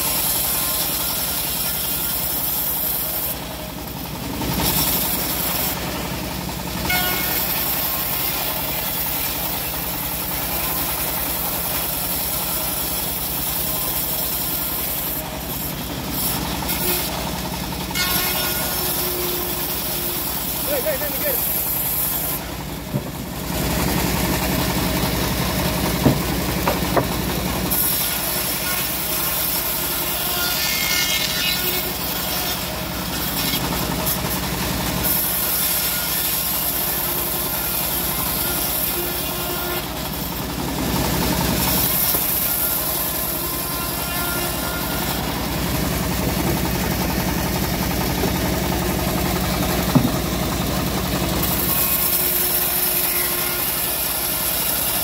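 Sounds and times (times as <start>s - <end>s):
bandsaw mill engine running: 0.0s - 55.0s
saw blade cutting wood: 0.0s - 55.0s
sharp knocks: 26.0s - 27.2s, 49.8s - 50.3s.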